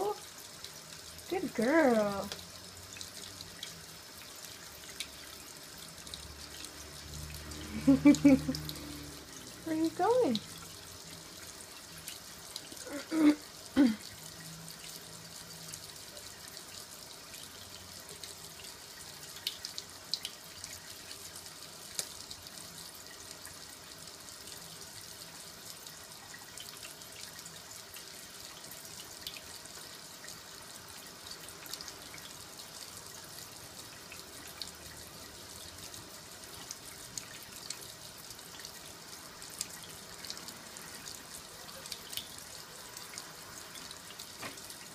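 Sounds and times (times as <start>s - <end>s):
faucet running into sink: 0.0s - 32.6s
water drips: 0.0s - 44.9s.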